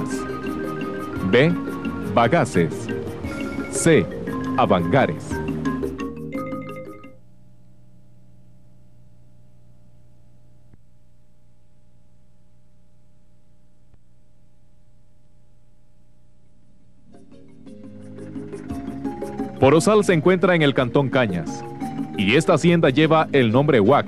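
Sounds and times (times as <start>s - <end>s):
music: 0.0s - 7.3s, 17.0s - 24.0s
low electrical hum: 7.0s - 17.8s.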